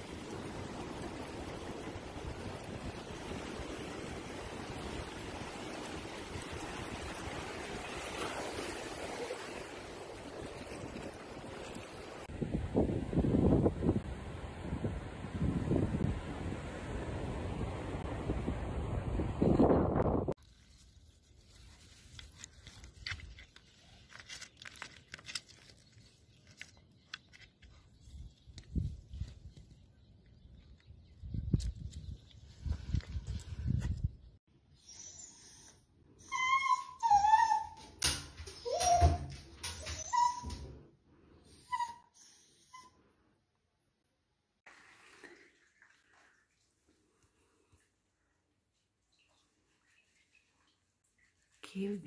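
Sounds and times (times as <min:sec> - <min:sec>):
surf washing in: 0:00.0 - 0:19.5
wind on microphone: 0:10.1 - 0:20.4, 0:31.0 - 0:34.4
dog paws on stones and grass: 0:20.4 - 0:29.8.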